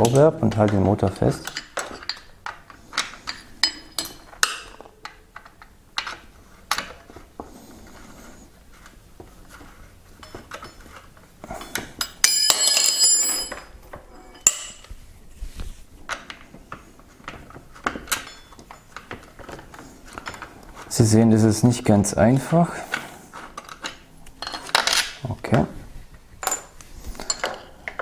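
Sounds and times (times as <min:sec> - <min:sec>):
metallic clicks of tool and bolt: 0:00.0 - 0:07.0
ringing metallic clatter: 0:12.0 - 0:14.8.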